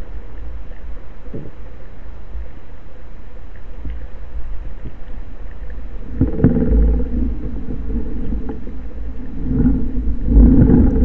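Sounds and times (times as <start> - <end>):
steady droning hum: 0.0 - 11.0
underwater rumble of moving water: 0.0 - 11.0.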